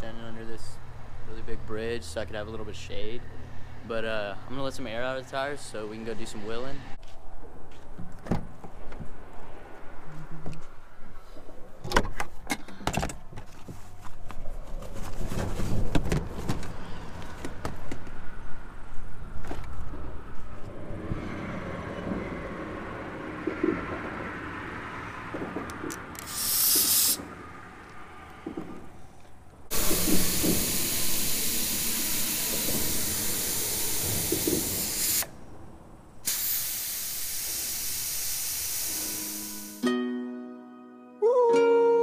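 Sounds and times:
road traffic rumble: 0.0 - 39.8
air hissing from tyre valve: 26.2 - 27.3, 29.7 - 35.4, 36.2 - 39.8.

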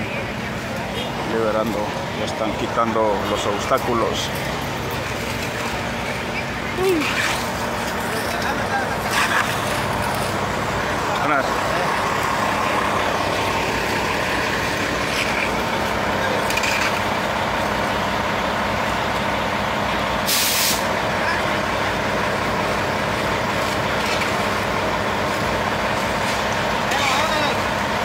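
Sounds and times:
diesel truck engine idling: 0.0 - 28.0
air hiss: 20.2 - 20.9.

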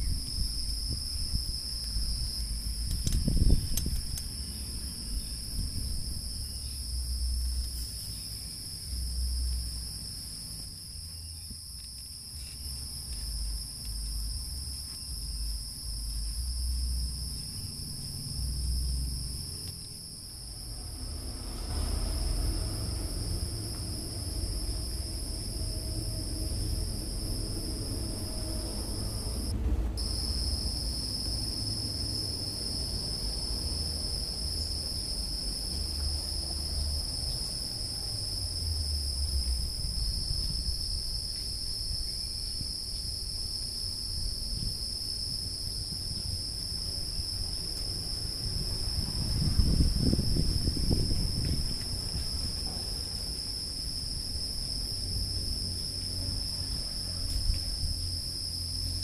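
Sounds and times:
insects droning: 0.0 - 59.0
low rumble: 12.6 - 41.2.

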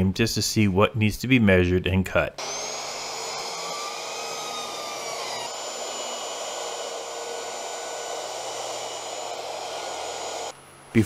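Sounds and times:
circular saw cutting board: 2.4 - 10.6.

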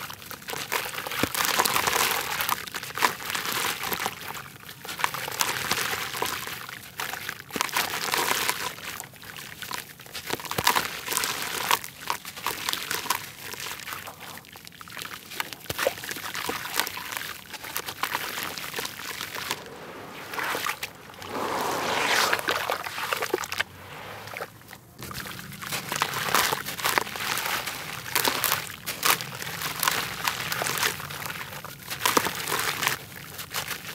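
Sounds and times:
hands squishing wet dirt: 0.0 - 33.9
water trickling and sloshing: 10.9 - 33.9.

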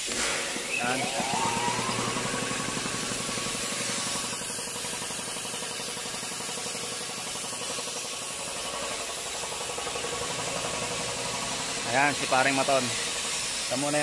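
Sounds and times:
air compressor chugging: 0.0 - 14.0.

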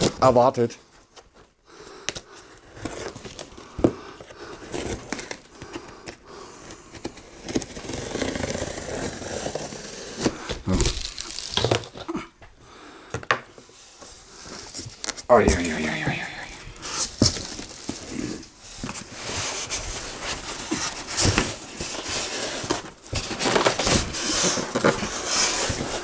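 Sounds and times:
cardboard scraping and rustling: 6.8 - 12.1, 16.8 - 26.0
packing tape cut and pulled: 7.0 - 12.2.

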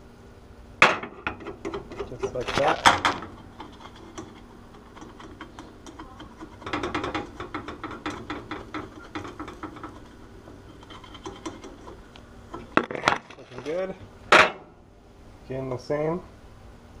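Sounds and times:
spatula scraping a frying pan: 1.1 - 13.8.

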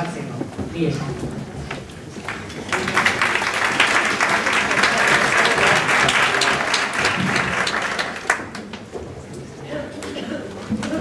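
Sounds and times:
audience applauding: 1.9 - 9.2.

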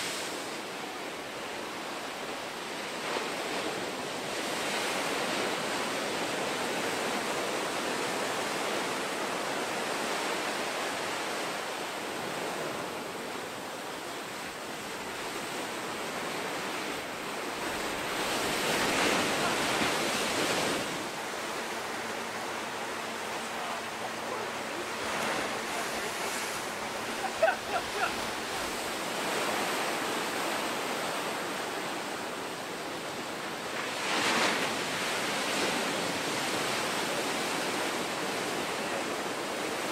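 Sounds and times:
ocean surf rumbling: 0.0 - 39.9
wave breaking: 14.7 - 32.2.

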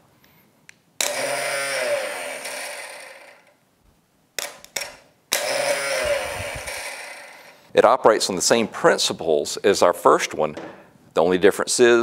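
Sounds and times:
starter motor whirring: 1.0 - 3.5, 5.4 - 7.5.

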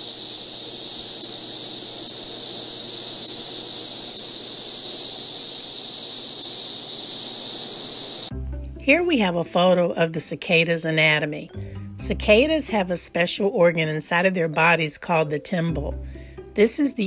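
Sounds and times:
cicadas droning: 0.0 - 8.4.

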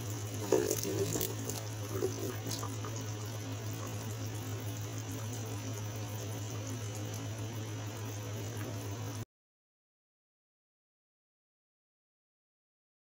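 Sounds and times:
stew simmering in a pot: 0.0 - 9.2
low electrical hum: 0.0 - 9.3.

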